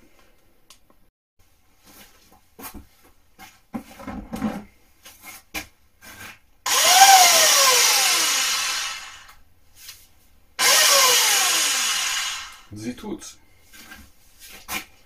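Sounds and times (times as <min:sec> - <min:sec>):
electric drill motor whine: 0:06.7 - 0:09.3, 0:10.6 - 0:12.7.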